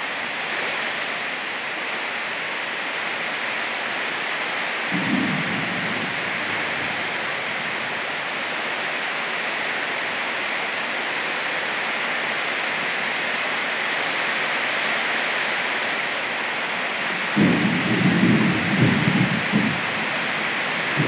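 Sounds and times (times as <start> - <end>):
heavy rain pouring: 0.0 - 21.0.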